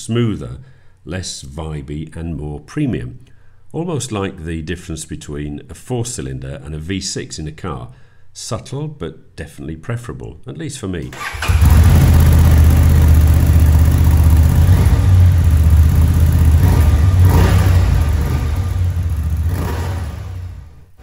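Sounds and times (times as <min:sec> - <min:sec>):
motorcycle engine idling: 0:11.2 - 0:20.7.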